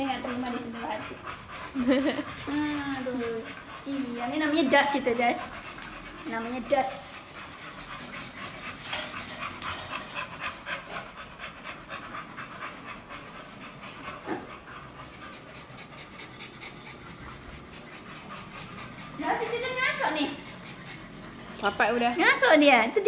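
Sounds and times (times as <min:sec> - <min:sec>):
dog panting rapidly: 0:00.0 - 0:23.0.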